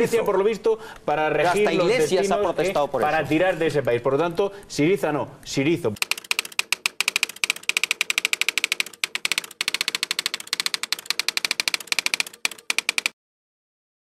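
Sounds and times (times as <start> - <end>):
rapid keyboard typing clicks: 6.0 - 13.2.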